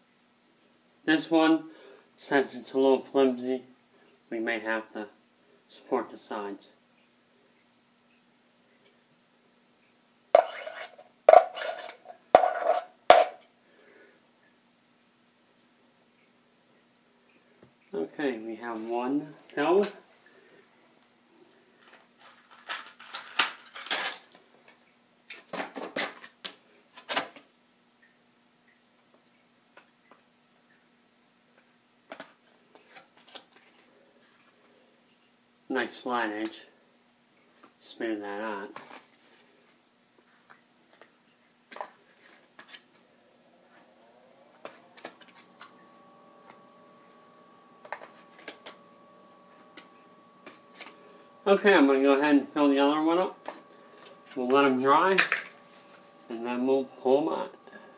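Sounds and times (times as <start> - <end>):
faint steady hum: 0.0 - 57.9
plastic bag crinkling: 21.8 - 24.4.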